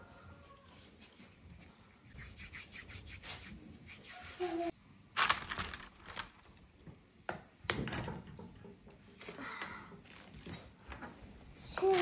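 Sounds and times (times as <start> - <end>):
rubbing and scraping: 0.6 - 4.7.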